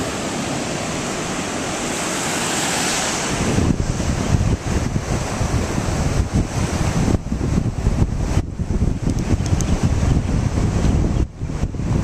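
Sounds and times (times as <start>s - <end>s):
surf washing on shore: 0.0s - 12.0s
wind buffeting microphone: 3.1s - 12.0s.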